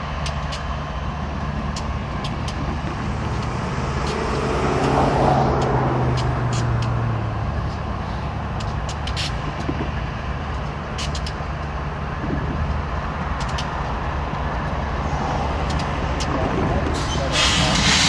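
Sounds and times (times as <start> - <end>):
locomotive engines idling: 0.0 - 18.0
sharp clicks or hisses: 17.0 - 18.0.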